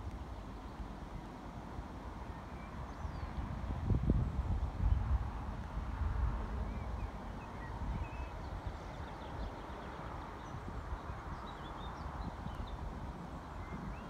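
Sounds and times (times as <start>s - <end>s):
low gusty rumble: 2.9s - 9.1s.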